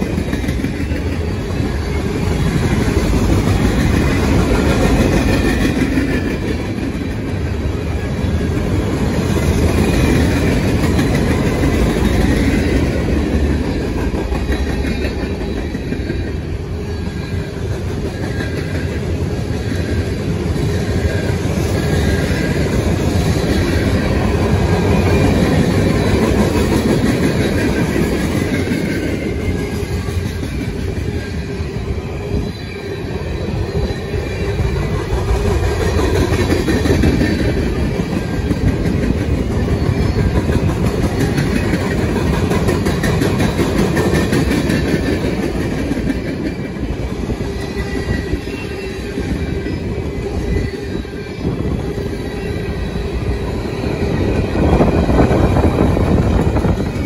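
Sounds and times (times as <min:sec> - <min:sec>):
train wheels rumbling on rails: 0:00.0 - 0:57.0
faint wheel squeal: 0:47.6 - 0:55.4.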